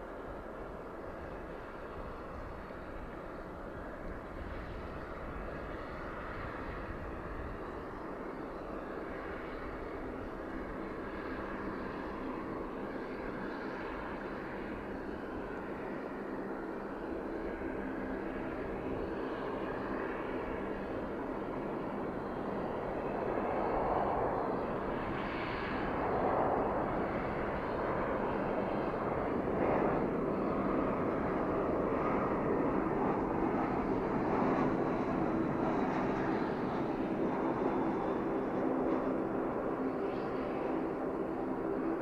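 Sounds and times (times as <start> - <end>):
jet engines rushing: 0.0 - 42.0.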